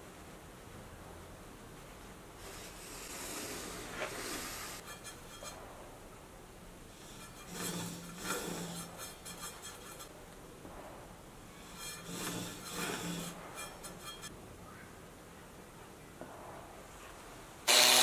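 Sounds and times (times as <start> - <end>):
pencil rubbing on turning wood: 2.5 - 5.6, 7.0 - 10.1, 11.5 - 14.3.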